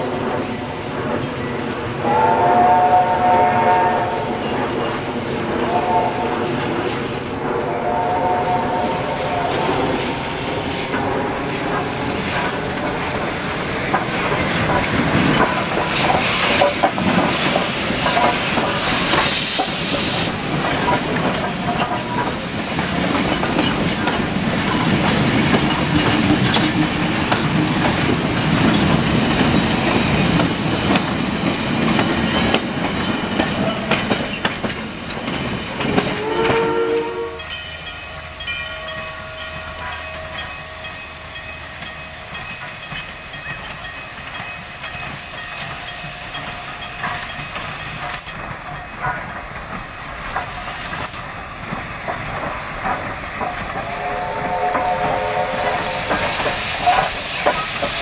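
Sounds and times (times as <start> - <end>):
train wheels clattering on rails: 0.0 - 58.0
steam hiss: 0.1 - 31.0, 43.8 - 58.0
wheel squeal: 20.7 - 24.2.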